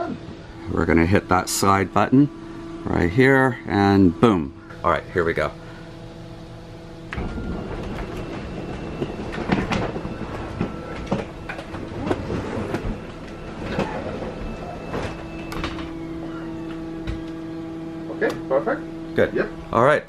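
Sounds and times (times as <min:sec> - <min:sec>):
clunks and knocks: 0:07.1 - 0:16.0.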